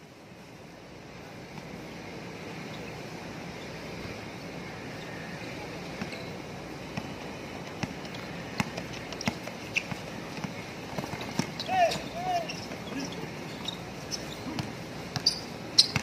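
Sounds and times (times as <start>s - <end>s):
basketball bouncing on concrete: 7.8s - 11.6s, 14.5s - 16.0s.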